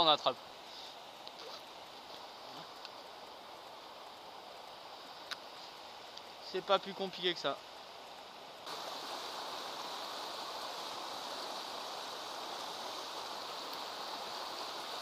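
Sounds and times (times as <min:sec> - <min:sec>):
river rushing over rapids: 0:08.6 - 0:15.0.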